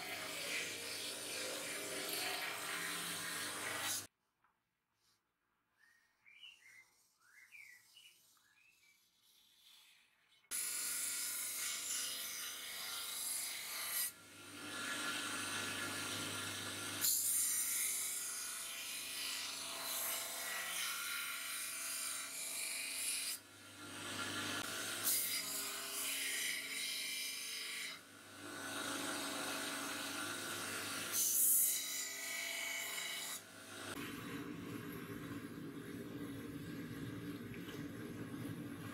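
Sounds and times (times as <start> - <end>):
belt grinder motor humming: 0.0 - 4.1.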